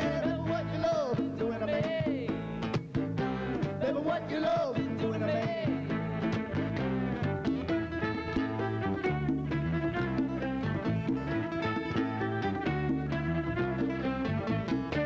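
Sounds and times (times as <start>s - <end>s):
man singing lead: 0.0s - 2.5s, 3.2s - 6.4s
acoustic rock band playing: 0.0s - 15.0s.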